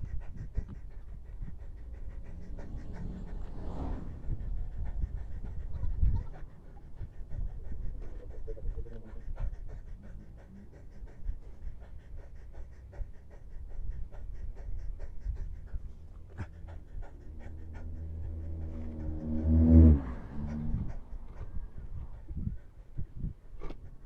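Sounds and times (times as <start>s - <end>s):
motor vehicle engine hum: 0.0s - 9.4s, 15.8s - 24.0s
low wind rumble: 0.0s - 24.0s.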